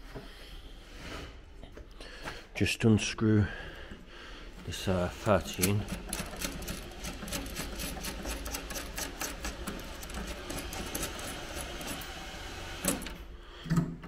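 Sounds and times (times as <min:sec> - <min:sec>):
ratchet wrench clicking: 0:05.5 - 0:12.2.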